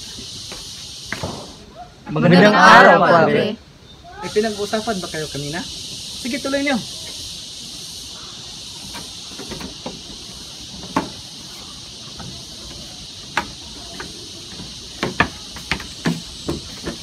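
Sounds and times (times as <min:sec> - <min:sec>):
steady high hiss: 0:00.0 - 0:17.0
footsteps walking: 0:08.9 - 0:17.0.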